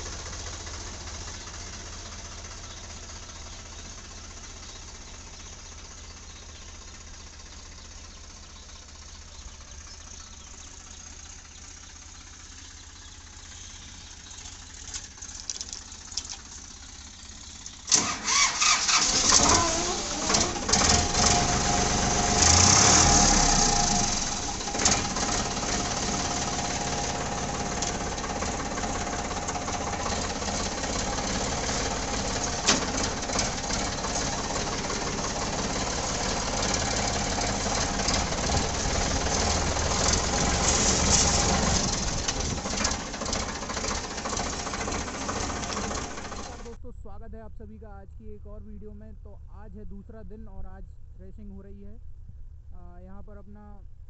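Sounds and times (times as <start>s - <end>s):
diesel tractor engine starting: 0.0s - 54.0s
faint low hum: 46.7s - 54.0s.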